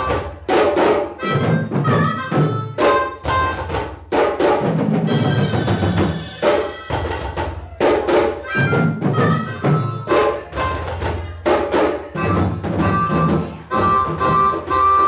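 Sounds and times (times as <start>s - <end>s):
harmonica holding notes: 0.0s - 0.3s, 1.1s - 3.8s, 5.0s - 7.4s, 8.4s - 11.4s, 12.1s - 15.0s
hand drums and bass drums: 0.0s - 15.0s.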